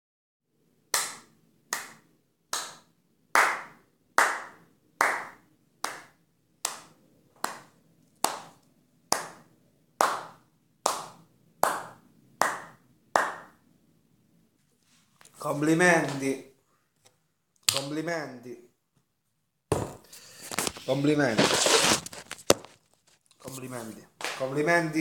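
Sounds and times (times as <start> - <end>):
person clapping slowly: 1.0 - 9.4, 10.0 - 13.6.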